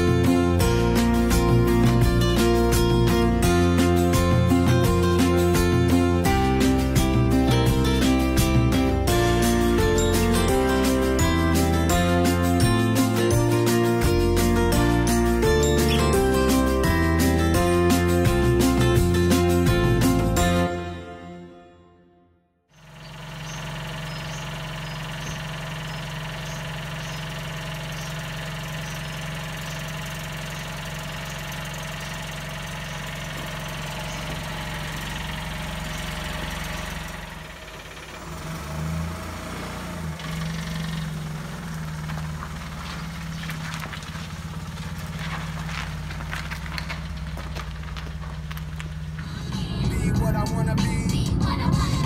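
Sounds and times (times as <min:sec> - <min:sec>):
car engine idling: 0:00.0 - 0:20.8, 0:22.7 - 0:52.0.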